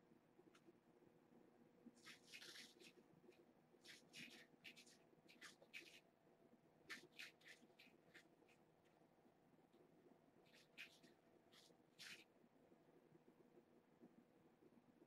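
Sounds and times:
kittens scratching and rustling cloth: 1.9 - 6.2, 6.8 - 9.0, 10.4 - 12.3.

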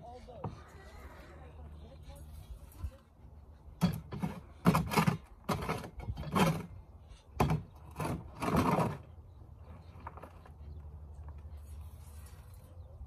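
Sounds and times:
garden tool scraping compost: 3.7 - 13.0.

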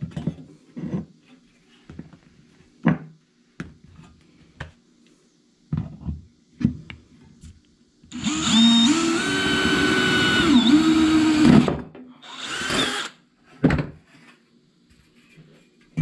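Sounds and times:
power drill boring sheet metal: 8.1 - 13.2.

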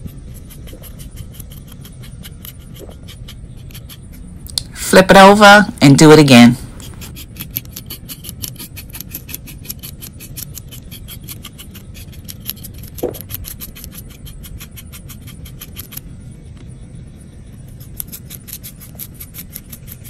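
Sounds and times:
knife scraping fish scales: 0.0 - 4.3, 6.8 - 16.1, 17.6 - 20.0.

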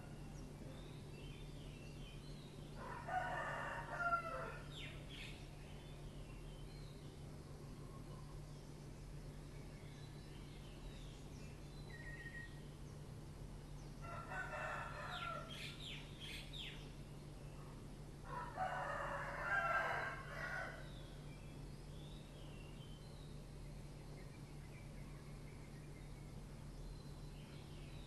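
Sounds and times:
rooster crowing: 2.8 - 4.9, 14.0 - 15.7, 18.2 - 20.9.

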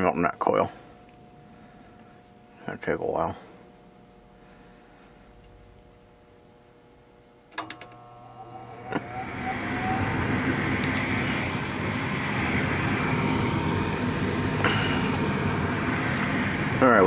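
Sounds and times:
motor humming and whining: 7.2 - 17.0
relay clicking: 7.5 - 9.4.

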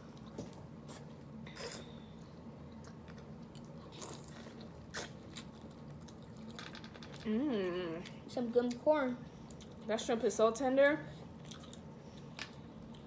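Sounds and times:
biting and chewing food: 0.0 - 7.2
faint steady hum: 0.0 - 13.0.

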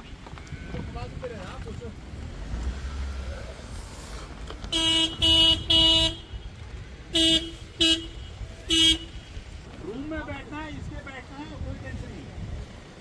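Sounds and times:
car horn beeps: 4.7 - 6.5, 7.1 - 9.3.

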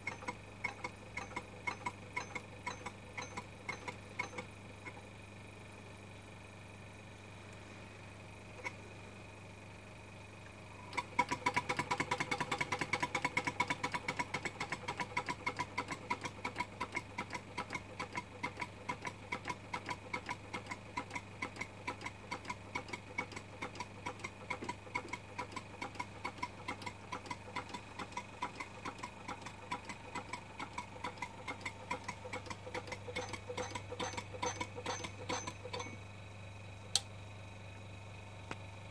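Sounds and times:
model steam engine clattering: 29.7 - 36.0.

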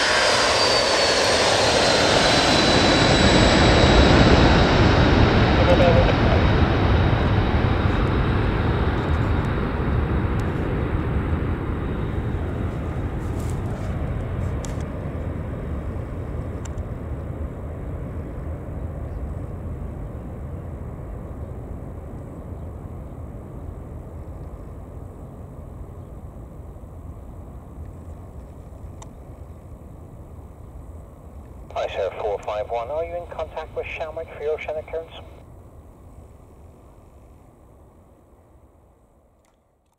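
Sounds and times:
high engine whine: 0.0 - 16.9, 31.4 - 36.8
jet engines climbing: 0.0 - 25.9, 31.4 - 36.0.

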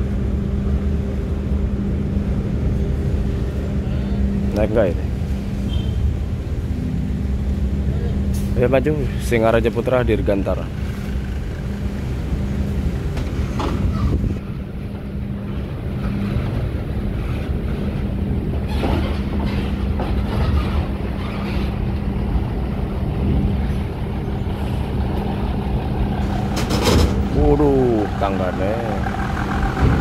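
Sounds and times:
bus diesel engine rumble: 0.0 - 30.0.

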